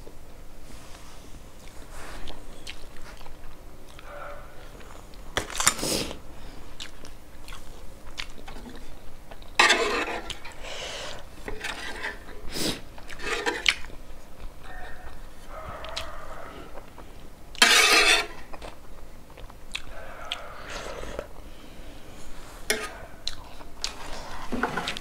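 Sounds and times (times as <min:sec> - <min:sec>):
person chewing: 0:01.6 - 0:25.0.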